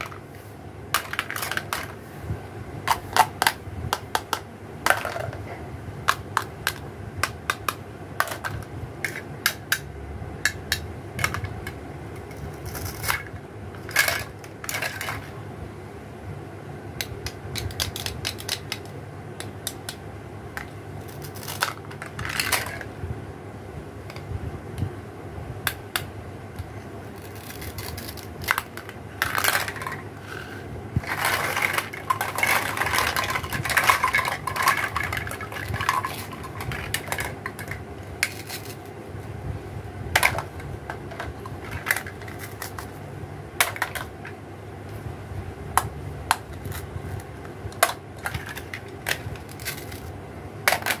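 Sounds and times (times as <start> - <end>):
steady low hum: 0.0 - 51.0
plastic pieces clattering: 0.9 - 2.0, 2.9 - 5.4, 11.2 - 15.4, 20.6 - 22.9, 27.1 - 38.9, 40.2 - 43.0, 43.6 - 44.1, 46.3 - 51.0.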